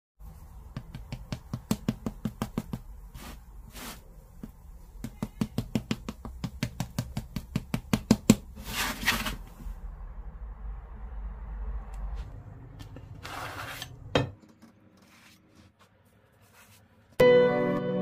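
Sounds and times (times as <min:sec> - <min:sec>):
pastry brush tapping bread: 0:00.3 - 0:08.6
spatula scraping in pan: 0:13.1 - 0:14.1.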